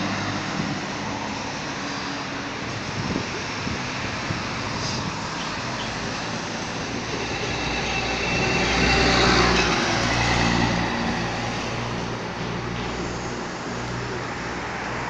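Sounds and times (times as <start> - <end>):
vehicle passing: 4.3 - 15.0.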